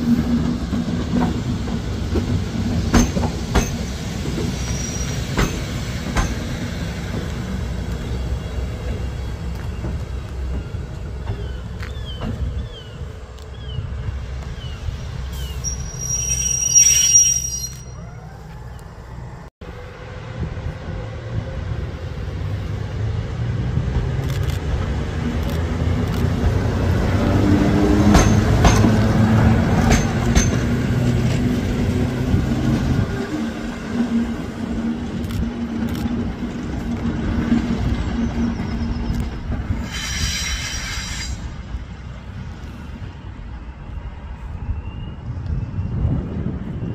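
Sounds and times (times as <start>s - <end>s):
high-pitched wheel squeal: 4.6s - 5.2s, 15.4s - 18.4s.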